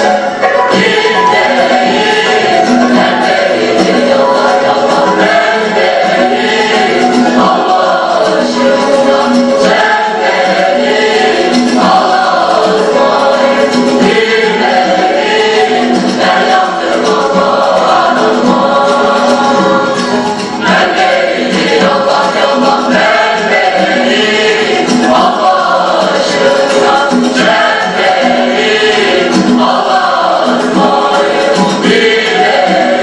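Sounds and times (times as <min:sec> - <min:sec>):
long-necked lutes playing: 0:00.0 - 0:17.2
mixed choir singing folk song: 0:00.0 - 0:33.0.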